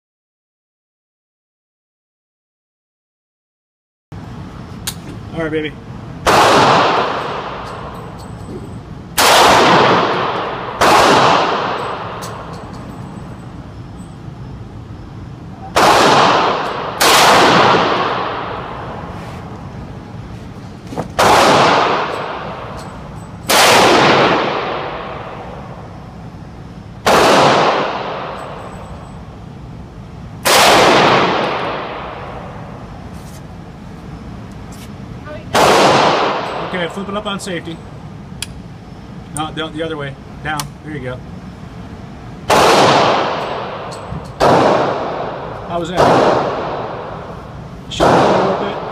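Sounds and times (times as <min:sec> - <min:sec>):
shotgun blasts echoing indoors: 0:06.2 - 0:08.0, 0:09.1 - 0:12.8, 0:15.6 - 0:19.0, 0:21.2 - 0:25.8, 0:27.0 - 0:29.0, 0:30.4 - 0:32.9, 0:35.4 - 0:37.0, 0:42.4 - 0:48.9.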